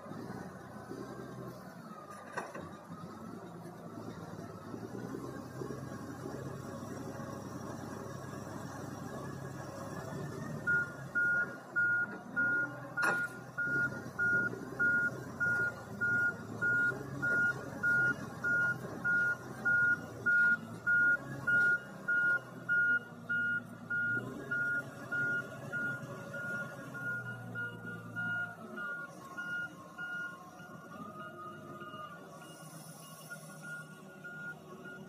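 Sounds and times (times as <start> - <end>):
diesel engine running: 0.0 - 35.0
reversing alarm beeping: 10.6 - 35.0.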